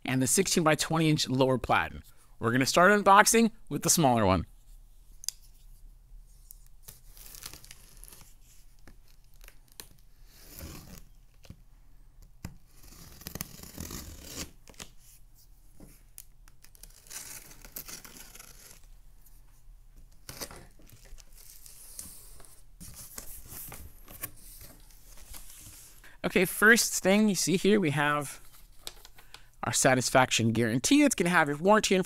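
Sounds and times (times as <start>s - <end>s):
packing tape tearing: 6.8s - 8.4s, 12.5s - 15.0s, 16.2s - 18.9s
box cutter slitting tape: 12.5s - 14.9s, 16.7s - 18.9s.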